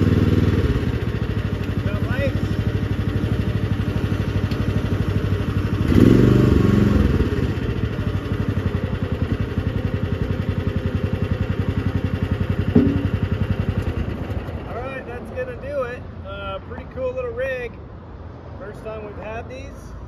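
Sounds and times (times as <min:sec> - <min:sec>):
small loader engine running: 0:00.0 - 0:15.4.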